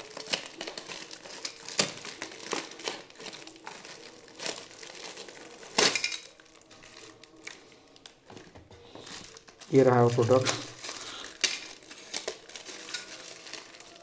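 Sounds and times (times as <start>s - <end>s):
plastic packaging crinkling: 0.0s - 14.0s.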